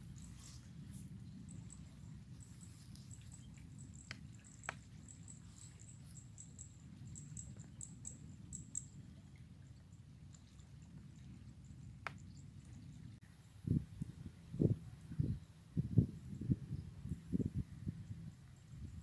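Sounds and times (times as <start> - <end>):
faint high-pitched chirps: 0.0 - 9.0.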